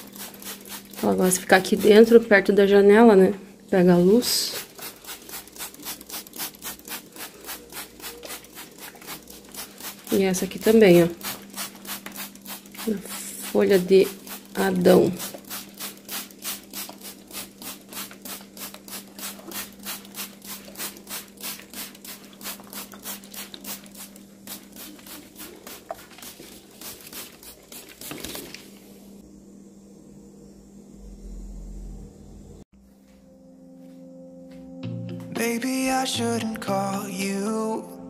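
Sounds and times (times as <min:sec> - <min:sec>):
spray bottle squirting: 0:00.0 - 0:02.1, 0:04.4 - 0:28.6.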